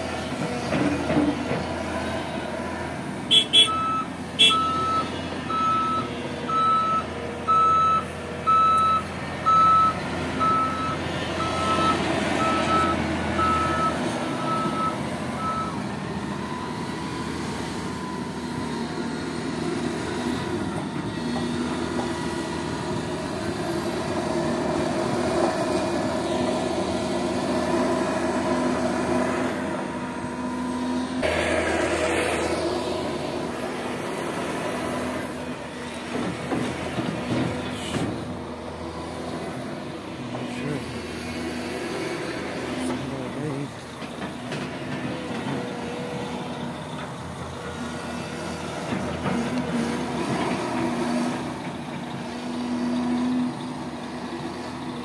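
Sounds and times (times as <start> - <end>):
excavator diesel engine and hydraulics: 0.0 - 55.0
reversing alarm beeping: 3.3 - 18.6.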